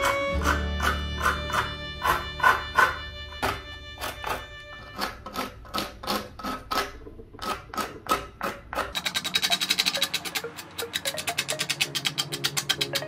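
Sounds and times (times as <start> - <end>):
music with plucked beat: 0.0 - 4.7, 10.1 - 13.0.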